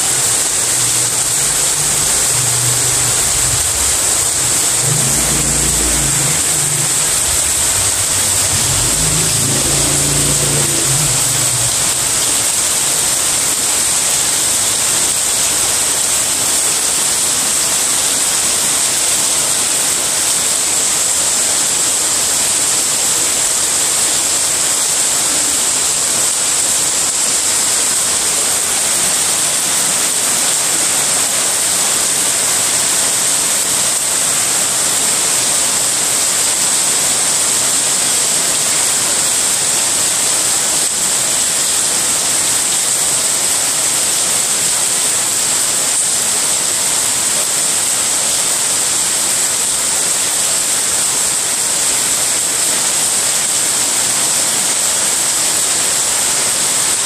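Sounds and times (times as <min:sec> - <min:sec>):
low engine-like hum: 0:00.0 - 0:12.6
heavy rain splashing on tiles: 0:00.0 - 0:57.0.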